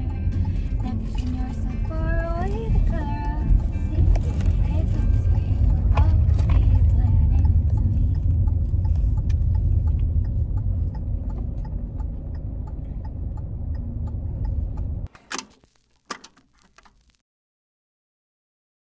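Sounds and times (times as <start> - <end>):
light even ticking: 0.0 - 15.4
road rumble inside car: 0.0 - 17.1
sharp clicks: 4.0 - 17.2.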